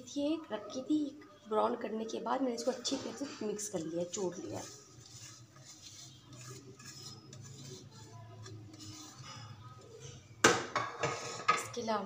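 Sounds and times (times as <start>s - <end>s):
spoon scraping plate: 2.6s - 11.8s.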